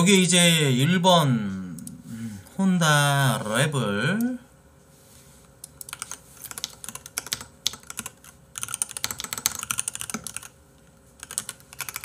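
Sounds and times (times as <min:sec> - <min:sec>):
typing on computer keyboard: 0:05.7 - 0:10.6, 0:11.2 - 0:12.0.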